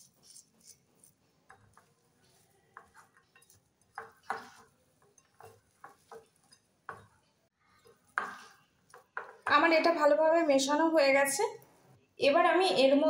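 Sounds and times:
hand mixing cabbage in bowl: 0.0s - 7.2s.

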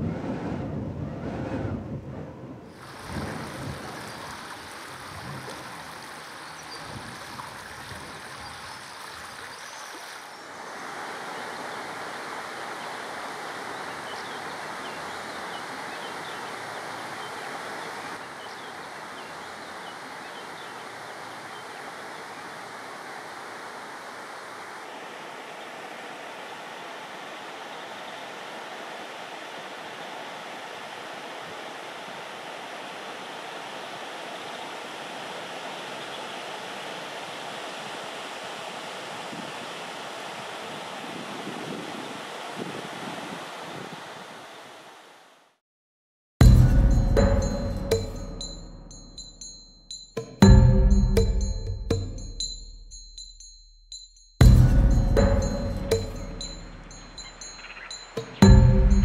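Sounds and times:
wind on microphone: 0.0s - 9.4s, 40.4s - 44.4s
river rushing over riffles: 2.7s - 45.6s
faint high chirps: 55.2s - 59.0s.

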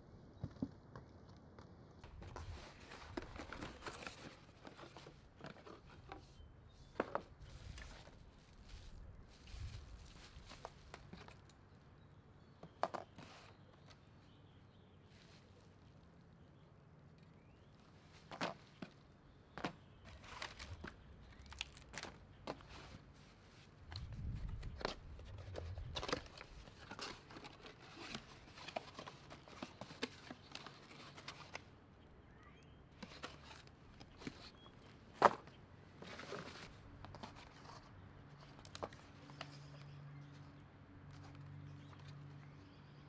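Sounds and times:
cardboard and plastic bags rustling: 2.0s - 11.5s, 19.6s - 31.7s, 32.9s - 37.8s.

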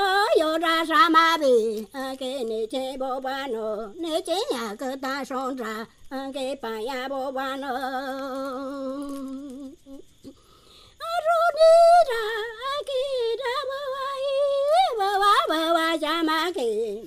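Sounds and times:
person singing unaccompanied: 0.0s - 17.0s.

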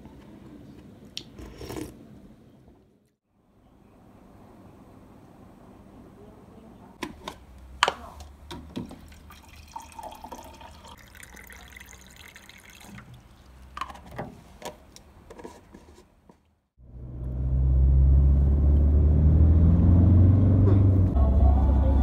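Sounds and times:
water pouring into a mug: 9.0s - 13.5s.

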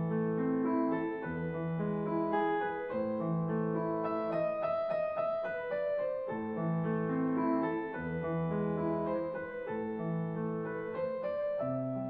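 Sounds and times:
piano playing slow chords: 0.0s - 12.0s.

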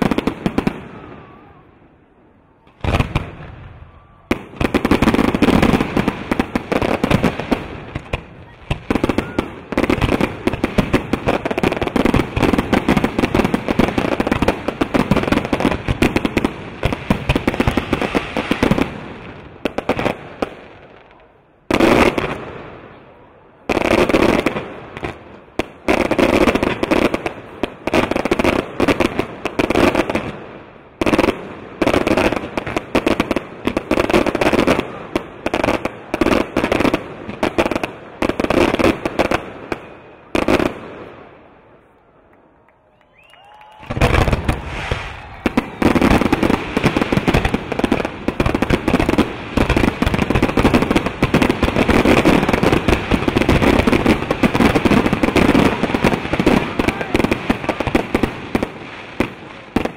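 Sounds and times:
fireworks crackling and popping: 0.0s - 1.6s, 2.6s - 59.9s
sharp firework burst: 43.8s - 57.8s.

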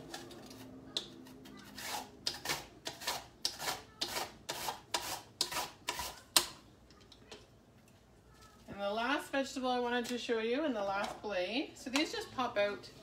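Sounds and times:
onion slicing on mandoline blade: 0.0s - 6.6s.

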